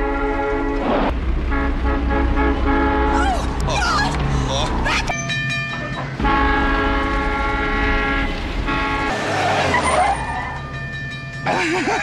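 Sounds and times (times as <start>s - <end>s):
multi-tone horn blaring: 0.0s - 4.2s, 6.2s - 10.3s
low engine rumble: 0.0s - 9.1s.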